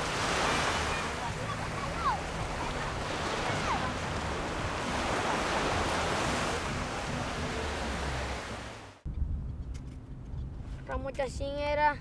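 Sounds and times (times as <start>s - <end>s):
surf rushing: 0.0s - 9.0s
wind buffeting microphone: 0.0s - 11.6s.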